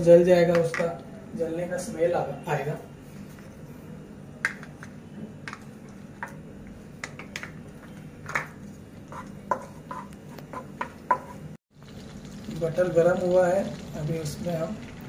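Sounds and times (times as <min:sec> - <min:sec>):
wooden spatula stirring: 0:07.0 - 0:11.6
butter crackling and popping in oil: 0:07.0 - 0:15.0.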